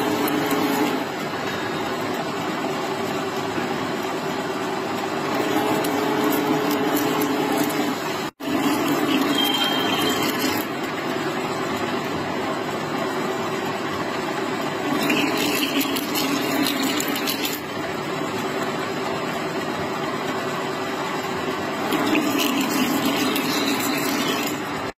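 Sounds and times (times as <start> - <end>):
metal lathe cutting: 22.0 - 24.9.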